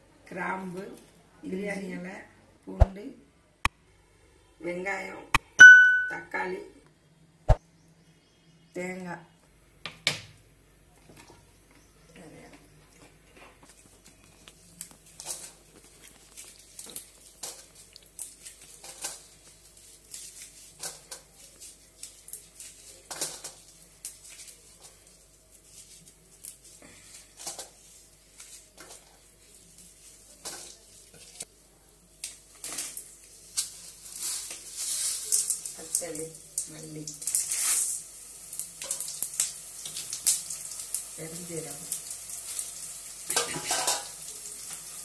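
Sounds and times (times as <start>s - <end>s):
steel plates and utensils clinking: 43.4s - 44.1s.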